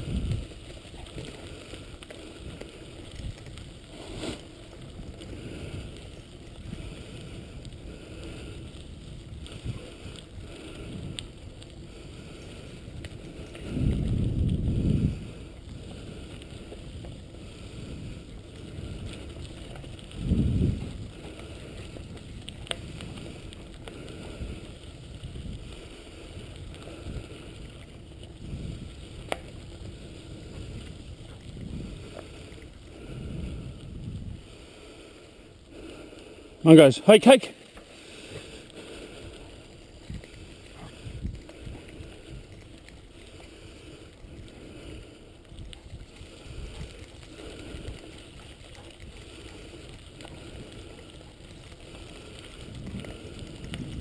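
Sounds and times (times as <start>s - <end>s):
wind on microphone: 0.0s - 35.0s, 38.4s - 54.0s
rig rolling over gravel: 0.0s - 54.0s
faint clicks: 21.0s - 34.2s, 37.6s - 54.0s.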